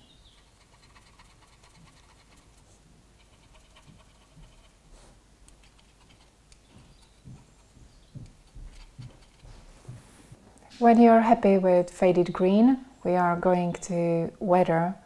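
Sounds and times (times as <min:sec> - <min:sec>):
cotton bud scratching: 0:00.3 - 0:09.9
soft handling knocks: 0:06.7 - 0:11.0.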